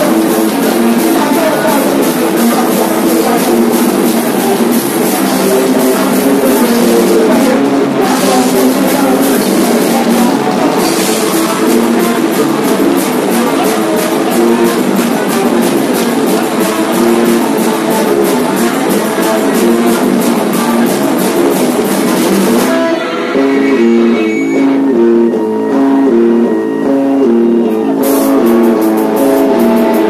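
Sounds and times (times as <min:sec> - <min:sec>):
metal band playing live: 0:00.0 - 0:30.0.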